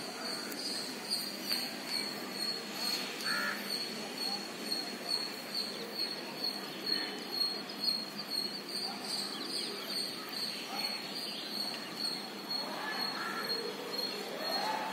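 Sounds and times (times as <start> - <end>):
flock of birds calling: 2.0 - 5.4, 8.9 - 14.9.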